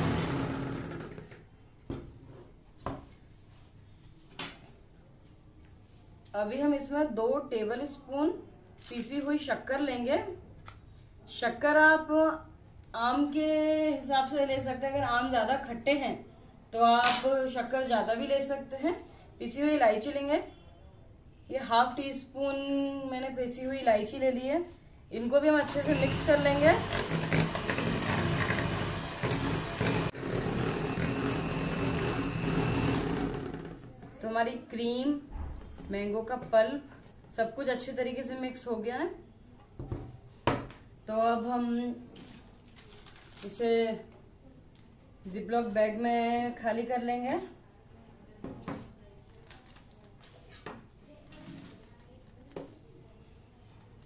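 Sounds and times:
electric hand mixer whipping: 0.0s - 0.9s, 25.6s - 33.7s.

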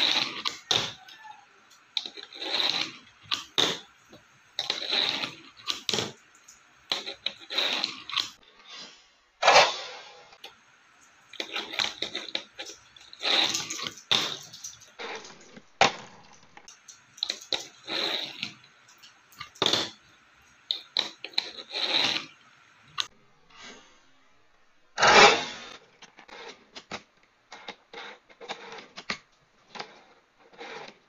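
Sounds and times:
fingerboard wheels rolling: 0.0s - 8.4s, 10.4s - 22.4s.

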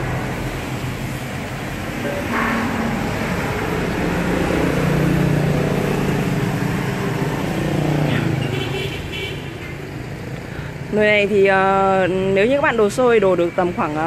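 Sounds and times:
vehicle engine passing by: 0.0s - 8.6s.

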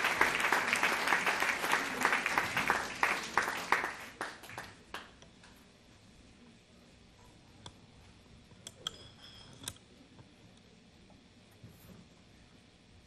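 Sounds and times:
audience applause: 0.0s - 5.1s.

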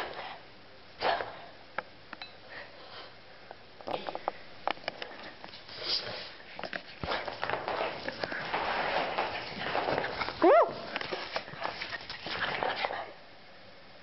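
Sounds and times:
dog feet scrambling on rug: 4.9s - 13.0s.

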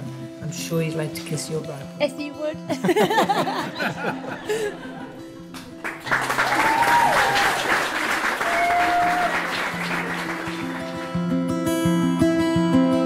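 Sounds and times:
plucked-string music: 0.0s - 6.2s, 9.5s - 13.0s
guests applauding: 5.4s - 11.8s.

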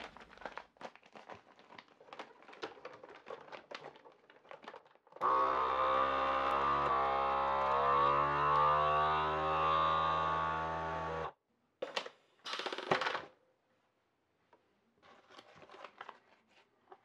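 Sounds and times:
plastic bag crinkling: 0.0s - 5.2s
vacuum pump running: 5.2s - 11.3s.

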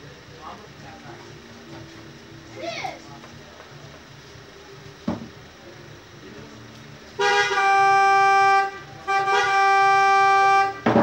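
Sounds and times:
short knock: 5.1s - 5.3s
loud horn blasts: 7.2s - 11.0s.

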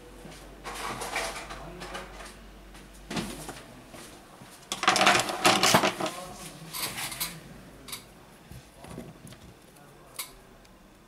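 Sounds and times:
plastic and metal items clattering: 4.7s - 6.2s.

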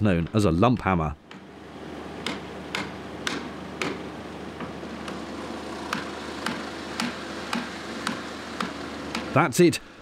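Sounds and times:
hammer striking metal: 2.2s - 4.0s, 5.9s - 9.3s.

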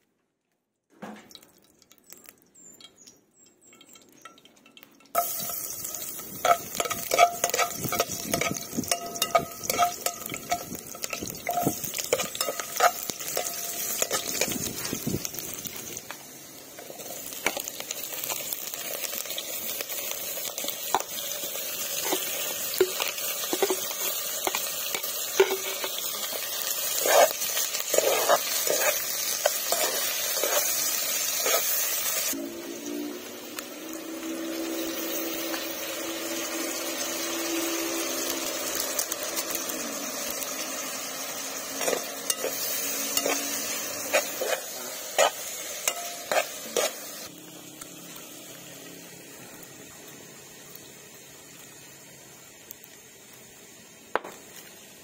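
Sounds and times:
onions sizzling in hot oil: 1.8s - 55.0s
utensil scraping a metal pot: 3.6s - 15.1s, 21.9s - 32.3s, 41.7s - 47.3s.

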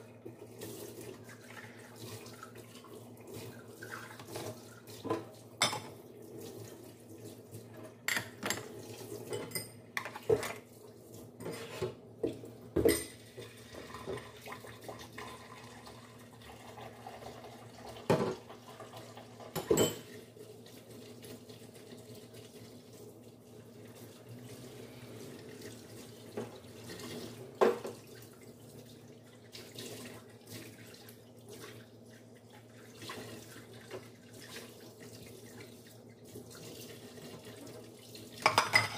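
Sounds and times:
dishes clinking and knocking: 5.1s - 5.9s, 8.1s - 8.7s, 12.8s - 13.2s, 19.5s - 20.1s, 38.4s - 38.9s.

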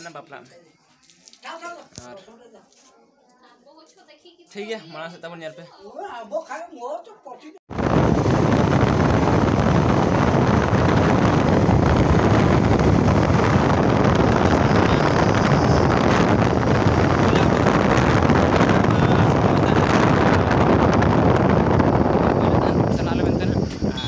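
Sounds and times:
wind noise on microphone: 7.7s - 24.0s.

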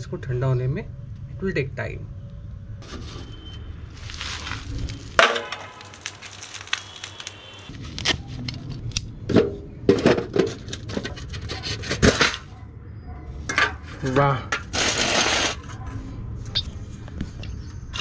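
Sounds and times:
charcoal lumps clinking: 4.0s - 7.6s
metal tin clanking: 5.2s - 6.0s.

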